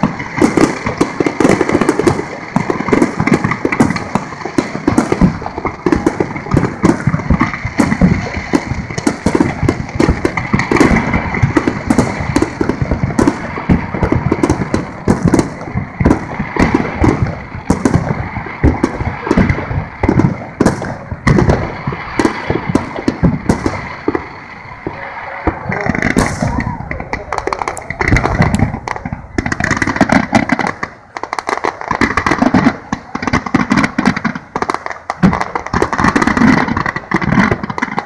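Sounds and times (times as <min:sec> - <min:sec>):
fireworks bursts and crackling: 0:00.0 - 0:38.0.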